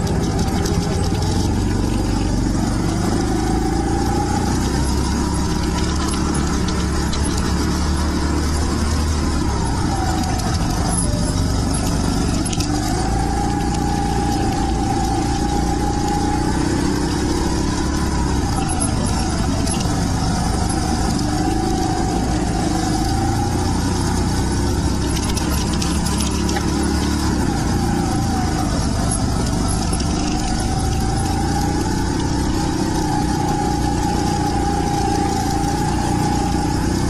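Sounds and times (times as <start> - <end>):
go-kart engine running: 0.0 - 37.0.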